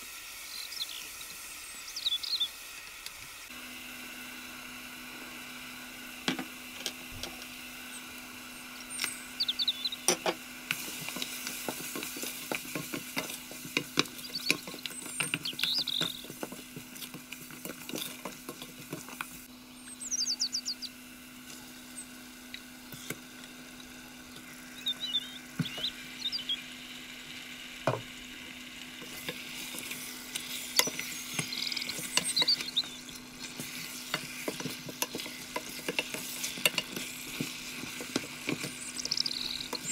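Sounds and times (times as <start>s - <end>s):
onions sizzling in oil: 0.0s - 39.9s
wooden spoon scraping a pot: 10.2s - 19.4s, 29.0s - 39.9s.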